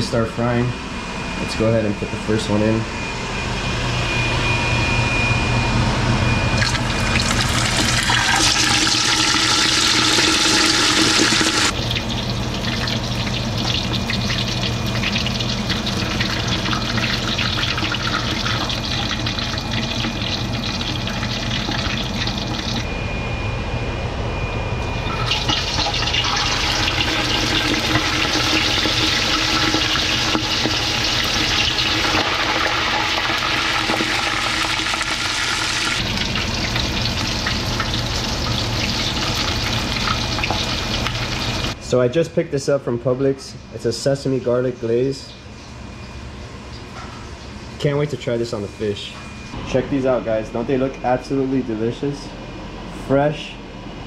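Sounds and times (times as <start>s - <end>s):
fish deep-frying in hot oil: 6.6s - 22.9s, 25.0s - 41.8s.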